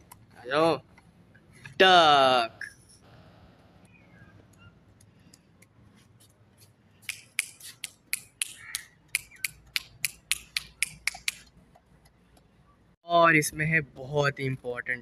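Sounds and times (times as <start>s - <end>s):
fingers snapping: 7.0s - 11.5s.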